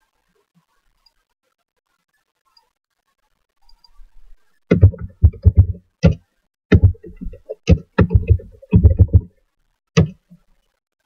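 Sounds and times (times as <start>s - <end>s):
computer keyboard typing: 4.7s - 9.3s.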